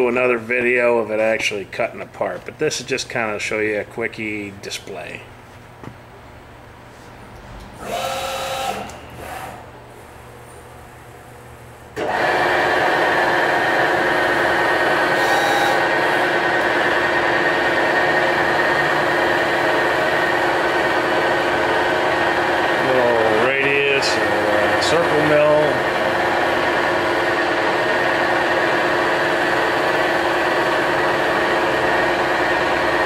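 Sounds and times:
milling machine whining: 0:07.6 - 0:33.0.

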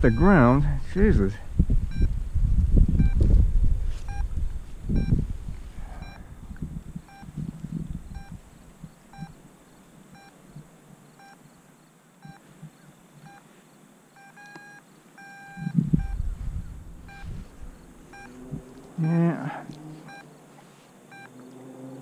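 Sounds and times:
variometer beeping: 0:00.0 - 0:00.6, 0:01.9 - 0:02.2, 0:03.0 - 0:03.2, 0:04.1 - 0:04.3, 0:04.9 - 0:05.2, 0:06.0 - 0:06.2, 0:07.1 - 0:07.3, 0:08.1 - 0:08.4, 0:09.1 - 0:09.4, 0:10.2 - 0:10.4, 0:11.2 - 0:11.4, 0:12.2 - 0:12.4, 0:14.2 - 0:16.2, 0:17.0 - 0:17.3, 0:18.1 - 0:18.4, 0:20.1 - 0:20.3, 0:21.1 - 0:21.4
wind rumbling on microphone: 0:00.0 - 0:10.8, 0:15.5 - 0:19.0.

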